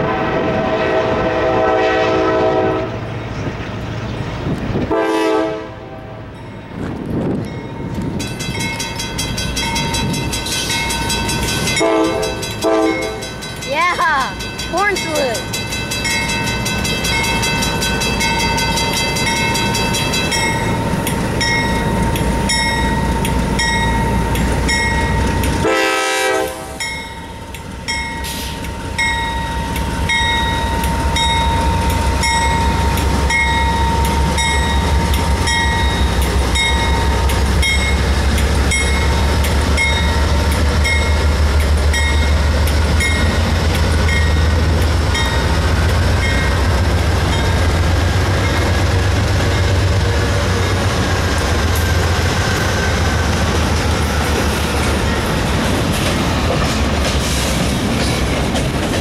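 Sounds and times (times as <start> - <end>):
train horn: 0.0 - 3.1, 4.8 - 6.3, 11.8 - 13.3, 25.6 - 26.9
locomotive engine and wheel rumble: 0.0 - 59.0
crossing bell dinging: 6.2 - 53.2.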